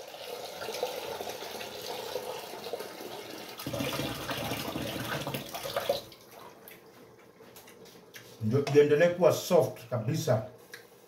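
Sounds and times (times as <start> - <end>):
tap water running into metal pot: 0.0 - 6.3.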